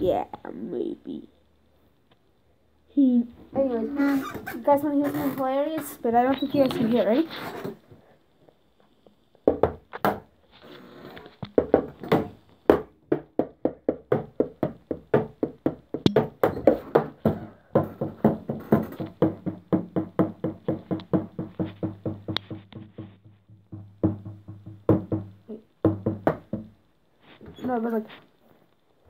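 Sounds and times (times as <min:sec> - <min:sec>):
drumstick hitting electronic drum pads: 0:11.5 - 0:26.7.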